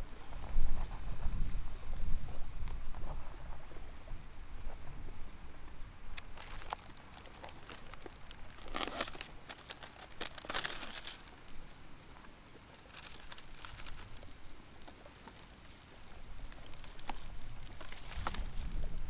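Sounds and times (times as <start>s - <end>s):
plastic packaging crinkling: 6.2s - 11.6s, 12.7s - 18.8s.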